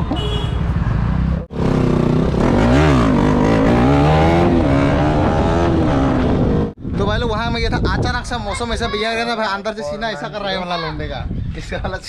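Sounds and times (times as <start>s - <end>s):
motorcycle engine accelerating: 0.7s - 6.8s.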